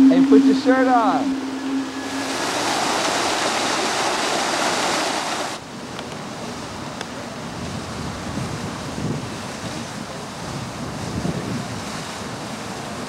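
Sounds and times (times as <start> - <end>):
wind on microphone: 1.3 - 13.0
splashing fountain water: 2.0 - 5.6, 6.3 - 13.0.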